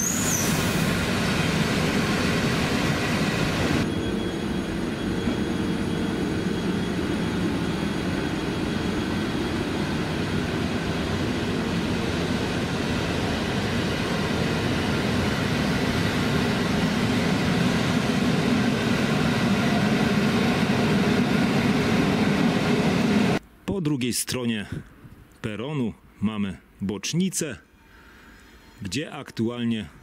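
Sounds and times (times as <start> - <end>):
train low rumble: 0.0 - 23.4.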